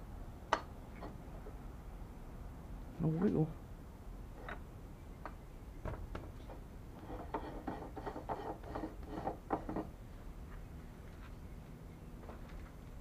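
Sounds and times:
metal rubbing on metal: 6.9s - 9.9s.

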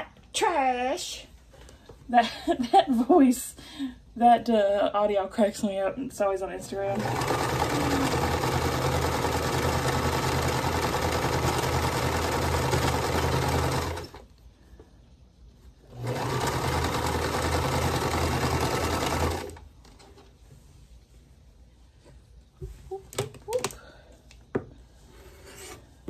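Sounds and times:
sewing machine stitching: 6.6s - 14.2s, 15.9s - 19.7s.

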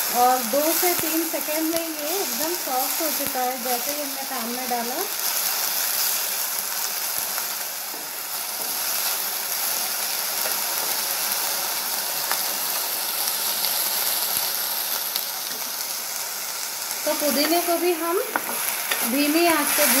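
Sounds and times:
leaves sizzling in hot oil: 0.0s - 20.0s
spatula tapping pan: 18.3s - 19.2s.

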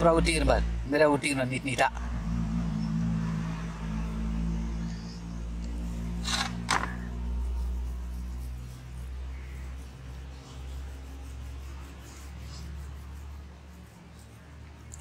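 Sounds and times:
steady low hum: 1.8s - 14.9s.

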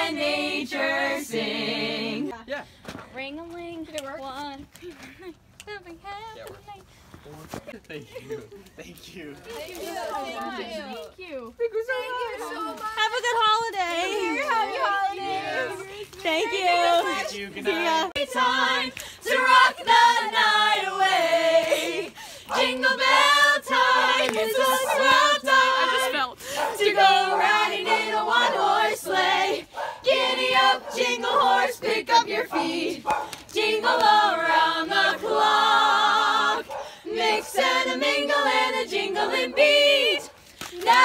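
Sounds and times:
group singing unaccompanied carol: 0.0s - 2.4s, 14.0s - 41.0s.

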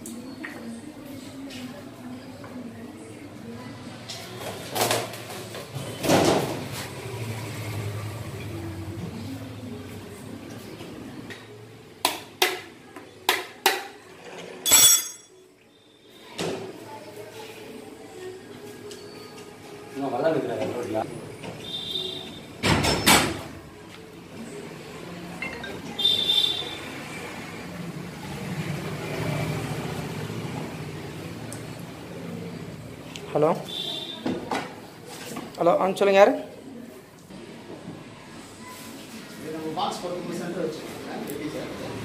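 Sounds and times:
sharp metallic clink: 14.7s - 15.4s.

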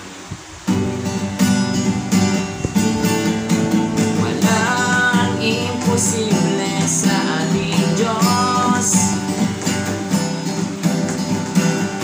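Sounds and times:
acoustic guitar strumming: 0.0s - 12.0s
man singing: 3.8s - 9.7s.

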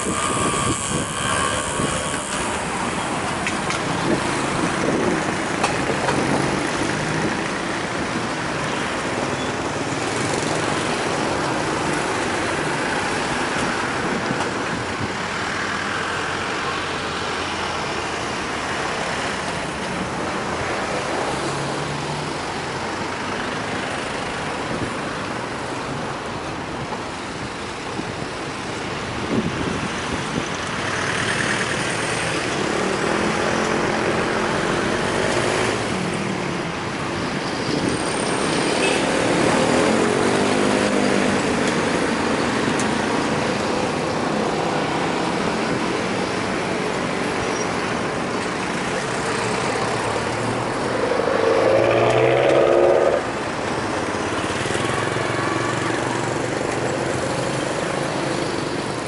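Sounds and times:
street traffic: 0.0s - 59.0s
engine rising and falling: 49.2s - 54.1s.

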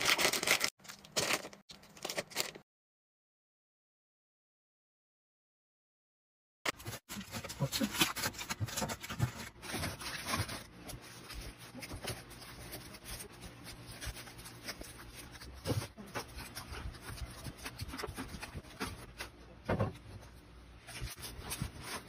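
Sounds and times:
wrappers crinkling: 0.0s - 2.6s.

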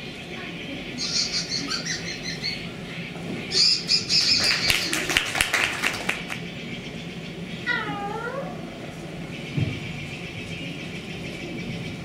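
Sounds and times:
parrot squawks and chirps: 1.0s - 2.6s, 3.5s - 5.0s
sharp clicks or claps: 4.4s - 6.4s.

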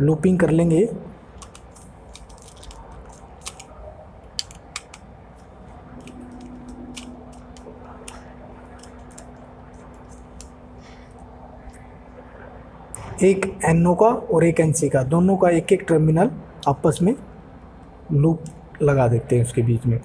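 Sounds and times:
low steady hum: 0.0s - 20.0s
screwdriver clicking and scraping: 6.0s - 10.6s.

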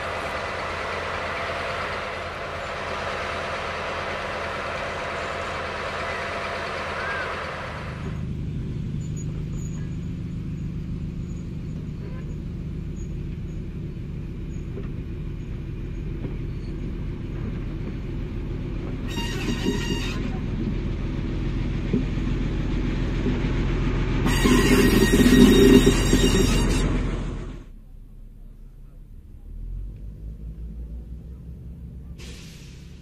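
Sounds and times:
diesel train engines running: 0.0s - 33.0s
train horn blast: 19.0s - 20.4s, 24.2s - 27.5s.

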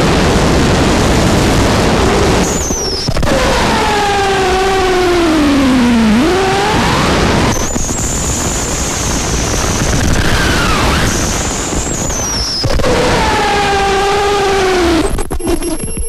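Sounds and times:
high thin whine: 0.0s - 15.1s
bending tones: 0.0s - 16.0s
wall of distorted noise: 0.0s - 16.0s
low wavering tones: 2.4s - 8.2s.

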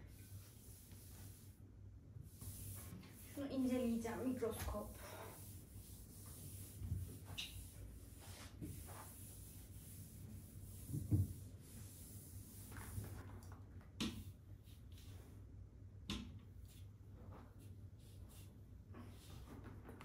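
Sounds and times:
cloth scrubbing a surface: 0.0s - 1.6s, 2.2s - 13.3s.

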